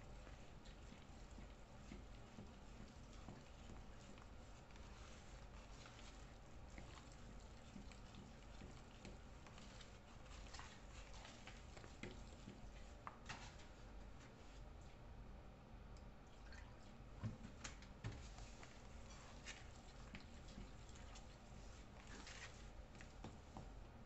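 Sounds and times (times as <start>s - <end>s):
batter squishing in a bowl: 0.0s - 15.2s, 16.9s - 24.0s.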